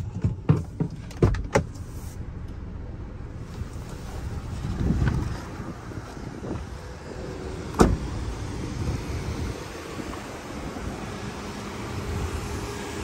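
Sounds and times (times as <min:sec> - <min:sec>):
car door shutting: 0:00.0 - 0:02.0, 0:07.6 - 0:08.2
wind noise on microphone: 0:03.7 - 0:13.0.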